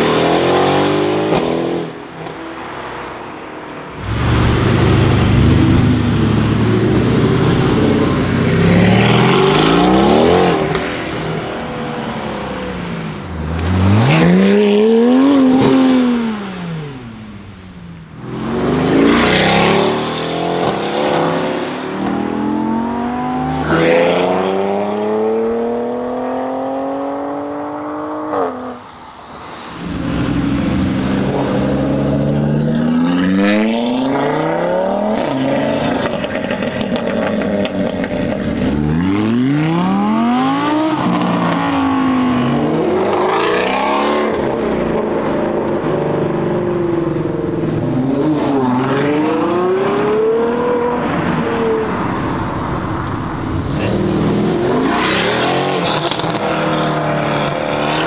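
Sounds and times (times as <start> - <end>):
car engine accelerating hard: 29.7 - 58.0.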